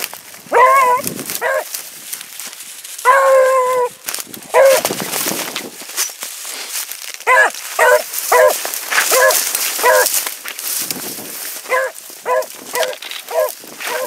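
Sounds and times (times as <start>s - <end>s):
wind and brush hiss: 0.0s - 14.0s
hound baying: 0.5s - 1.7s, 3.0s - 4.9s, 7.2s - 10.2s, 11.6s - 14.0s.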